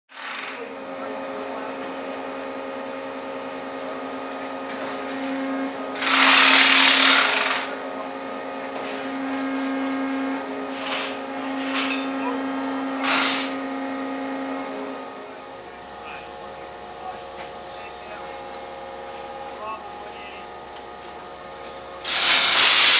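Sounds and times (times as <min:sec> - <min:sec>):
machine droning hum: 0:00.2 - 0:22.9
loud hissing rush: 0:13.0 - 0:13.6, 0:22.0 - 0:22.9.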